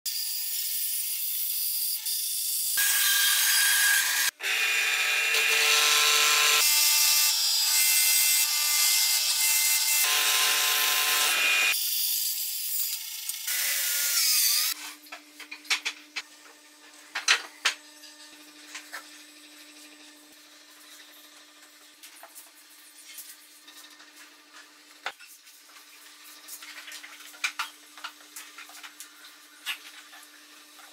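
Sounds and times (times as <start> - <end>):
bandsaw cutting wood: 2.8 - 11.8, 12.8 - 14.8.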